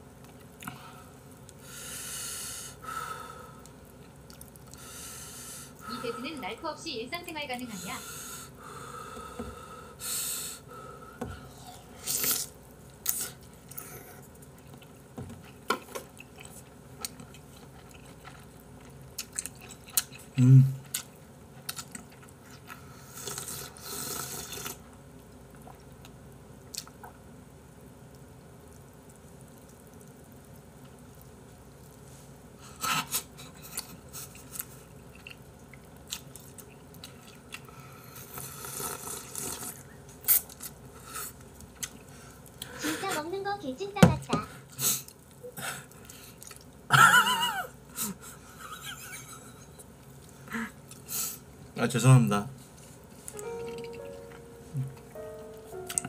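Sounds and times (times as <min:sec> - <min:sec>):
person chewing: 0:03.5 - 0:05.9, 0:11.5 - 0:24.9, 0:25.5 - 0:27.3, 0:32.7 - 0:42.8, 0:44.7 - 0:46.9, 0:52.8 - 0:56.0
person slurping broth: 0:11.5 - 0:14.2, 0:23.0 - 0:24.8, 0:38.1 - 0:41.4
low vocal grunt: 0:20.4 - 0:20.8.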